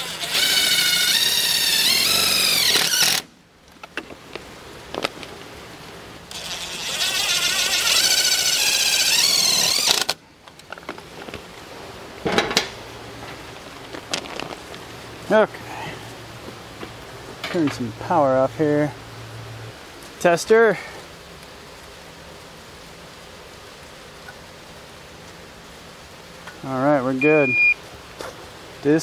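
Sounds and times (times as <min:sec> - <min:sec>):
power drill whining: 0:00.0 - 0:03.3, 0:06.3 - 0:10.2.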